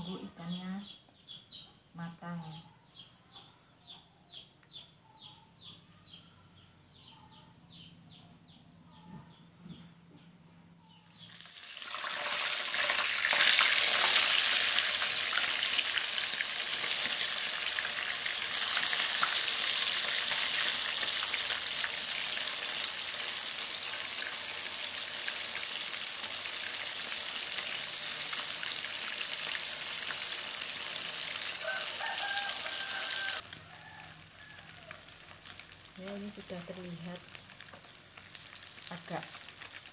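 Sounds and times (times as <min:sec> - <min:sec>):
fish sizzling in hot oil: 0:11.1 - 0:39.9.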